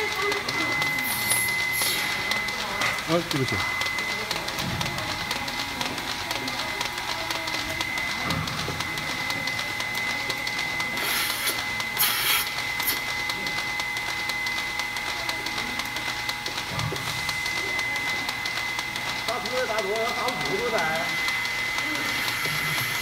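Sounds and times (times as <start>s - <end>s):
milking machine humming and whining: 0.0s - 23.0s
rapid ticking of pulsators: 0.0s - 23.0s
loud air hisses: 11.0s - 13.0s.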